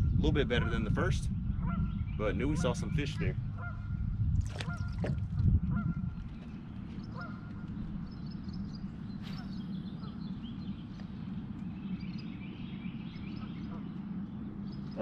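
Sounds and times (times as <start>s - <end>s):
steady low rumble: 0.0s - 15.0s
bird call: 7.0s - 11.1s
faint high bird chirps: 7.0s - 15.0s.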